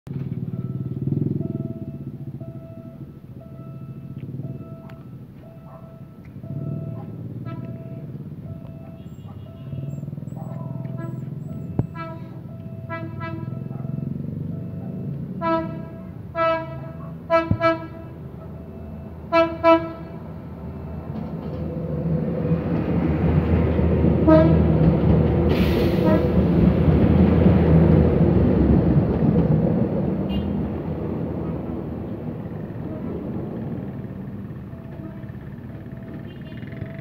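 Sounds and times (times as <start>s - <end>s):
train passing rumble: 0.1s - 37.0s
train horn toots: 7.4s - 8.0s, 10.9s - 13.7s, 15.4s - 18.2s, 19.3s - 20.3s, 24.2s - 24.8s, 25.8s - 26.5s, 30.2s - 30.7s, 34.9s - 35.4s.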